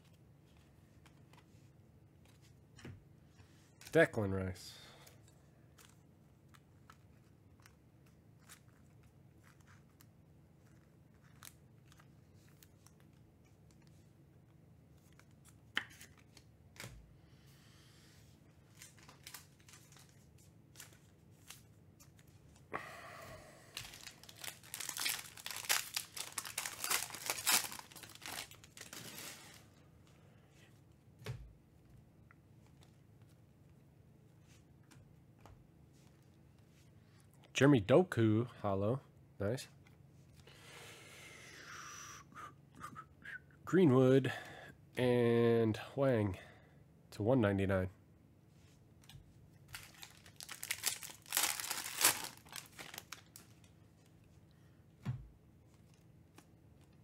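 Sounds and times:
foil pack tearing and crinkling: 23.8 - 29.6, 49.7 - 53.5.

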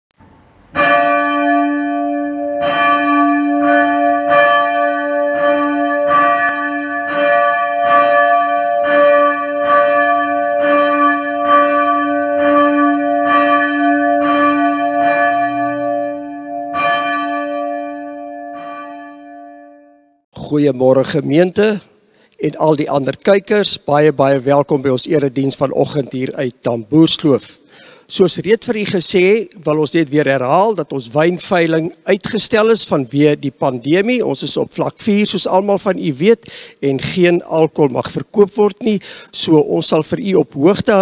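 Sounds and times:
church bell tolling: 0.7 - 20.2.

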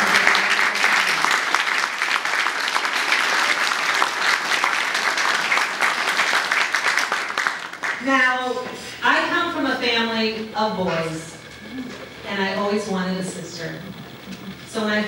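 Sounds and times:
crowd applauding: 0.0 - 8.6.

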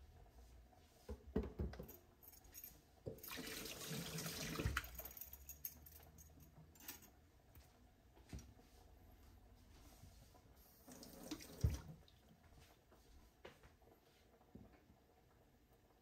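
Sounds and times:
tap running water: 3.0 - 5.0, 10.9 - 12.2.

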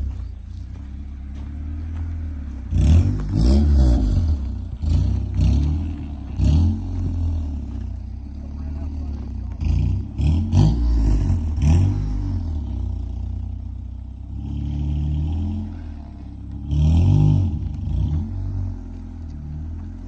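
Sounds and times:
car engine idling and revving: 0.0 - 20.0.

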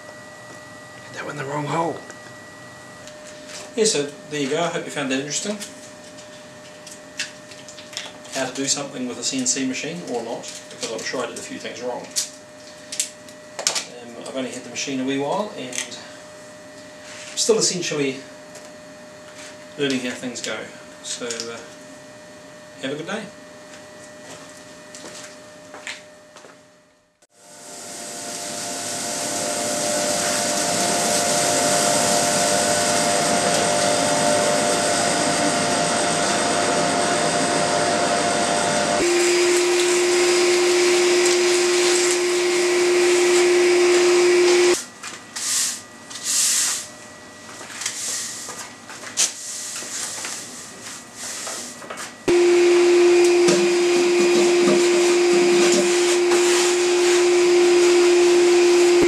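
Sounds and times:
vacuum motor humming: 27.4 - 44.8, 52.2 - 59.0.

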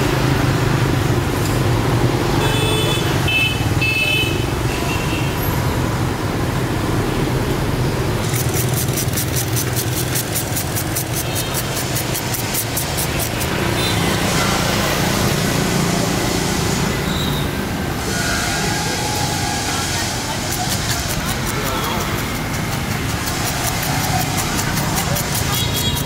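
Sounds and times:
road traffic engines: 0.0 - 26.0
fast high ticking: 8.2 - 13.9, 20.2 - 26.0.

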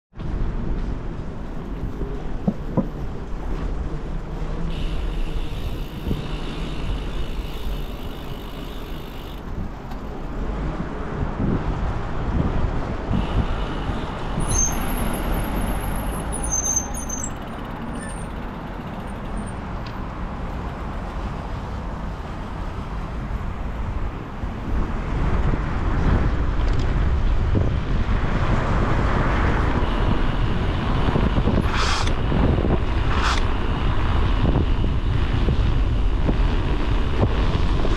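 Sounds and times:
passing road traffic: 0.1 - 37.9
bicycle tyres rumbling on paving: 0.2 - 19.6, 24.6 - 37.9
wind on microphone: 5.5 - 15.7, 23.9 - 37.9.

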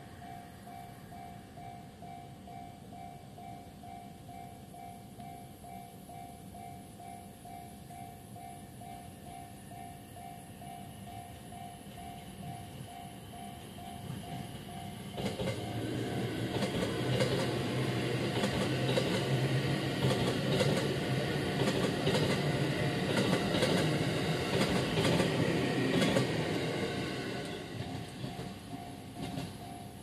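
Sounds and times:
level crossing warning bell: 0.0 - 30.0
train wheels clacking on rail joints: 12.1 - 30.0.

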